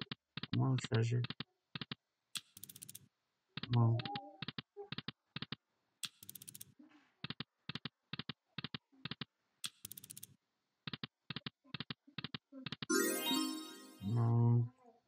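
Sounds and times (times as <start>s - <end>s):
bright sound effect burst: 12.9s - 14.1s.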